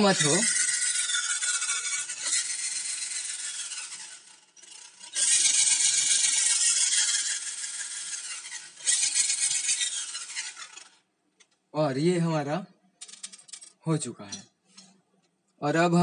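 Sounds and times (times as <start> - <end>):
cordless drill motor whine: 0.0 - 11.0.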